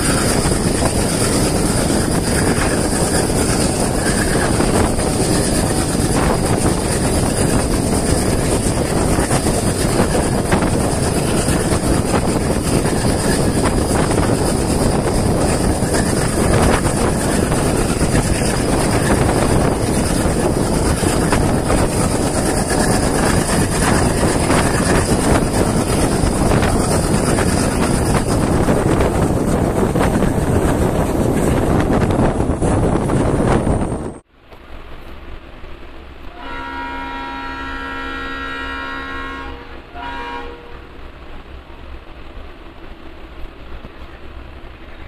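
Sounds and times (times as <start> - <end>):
wind buffeting microphone: 0.0 - 34.3
passenger train rumble: 0.0 - 45.0.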